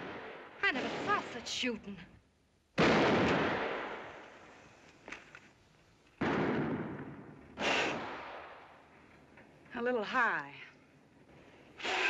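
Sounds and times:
loud gunshots with long echo: 0.0 - 1.6, 2.8 - 4.2, 6.2 - 8.8
faint crack: 4.2 - 6.3.

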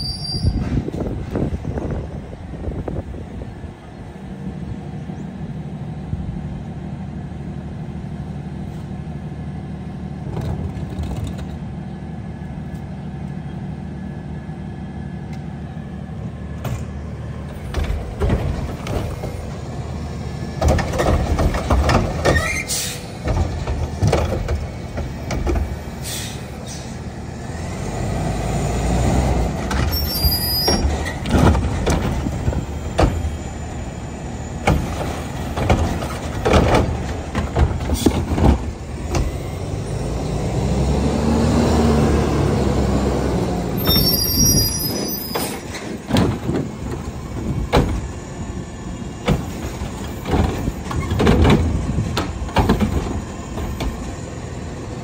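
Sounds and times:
knocks and bangs of bin dumping: 30.8 - 33.3, 34.6 - 39.3, 45.4 - 48.1, 49.2 - 54.0.

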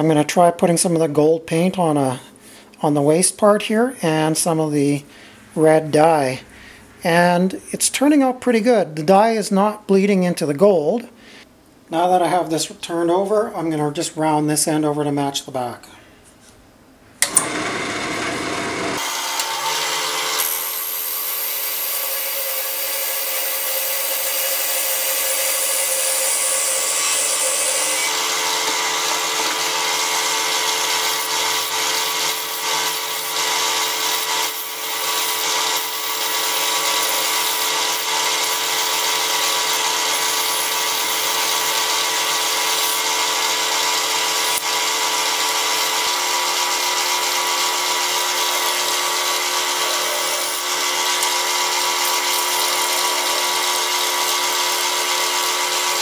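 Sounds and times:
lathe motor hum: 17.2 - 56.0.

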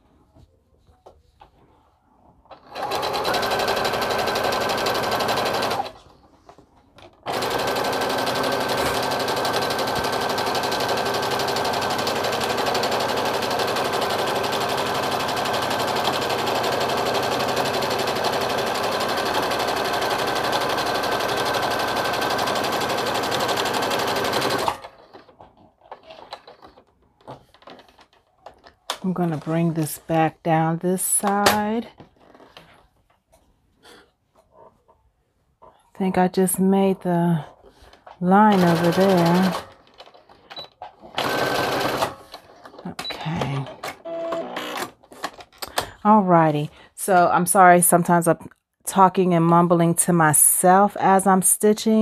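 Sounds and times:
sewing machine stitching: 2.5 - 6.1, 7.2 - 26.9, 38.0 - 44.9.

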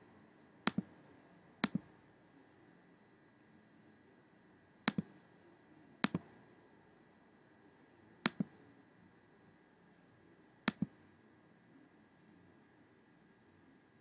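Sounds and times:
mouse button clicks: 0.7 - 0.9, 1.6 - 1.9, 4.9 - 5.1, 6.0 - 6.3, 8.2 - 8.5, 10.7 - 11.0.

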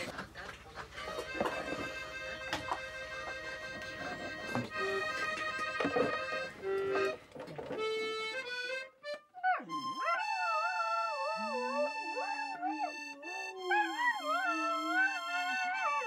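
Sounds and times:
button accordion playing chords: 0.9 - 10.3, 11.6 - 13.7
dog howling: 9.4 - 16.0.

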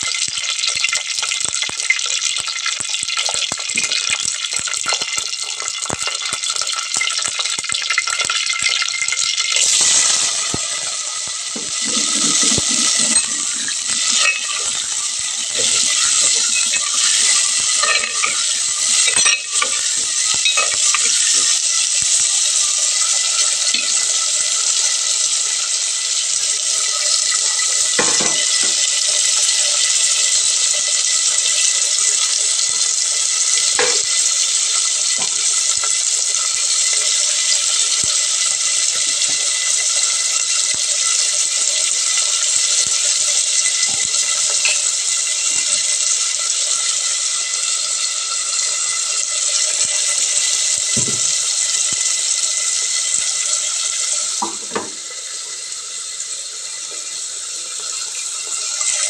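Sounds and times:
hot oil sizzling: 0.0 - 59.0
seeds popping in oil: 0.1 - 21.4
spoon scraping pot: 9.6 - 21.4.

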